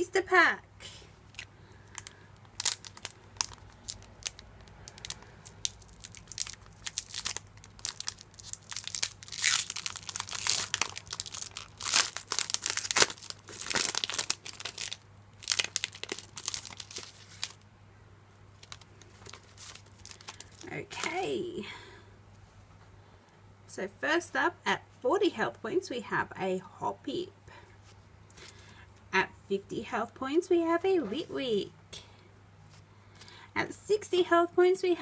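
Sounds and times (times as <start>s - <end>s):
foil wrapper tearing and crinkling: 1.3s - 17.6s, 18.6s - 21.1s.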